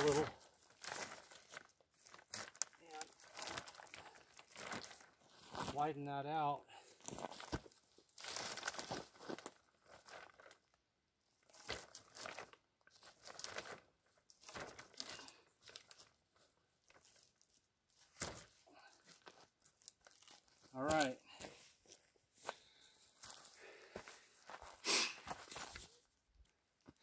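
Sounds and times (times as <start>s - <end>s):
plastic bags crinkling: 0.0s - 5.6s, 8.2s - 10.6s, 11.5s - 21.0s.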